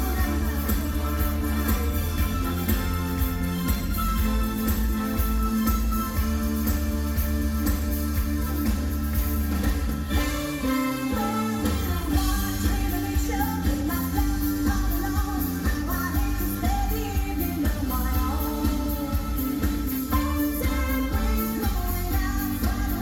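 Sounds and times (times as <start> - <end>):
woman singing: 0.0 - 2.8, 10.1 - 23.0
backing band playing pop music: 0.0 - 23.0.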